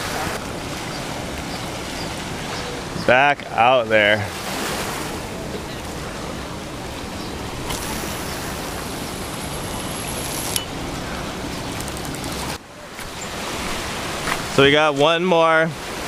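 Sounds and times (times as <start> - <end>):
waves breaking on rocks: 0.0 - 16.0.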